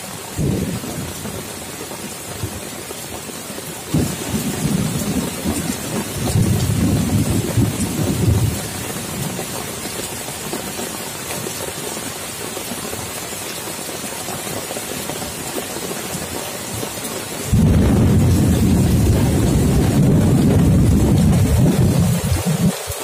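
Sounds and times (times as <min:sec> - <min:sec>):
heavy rain on leaves and puddles: 0:00.0 - 0:23.0
rolling thunder: 0:03.9 - 0:08.6, 0:17.5 - 0:22.8.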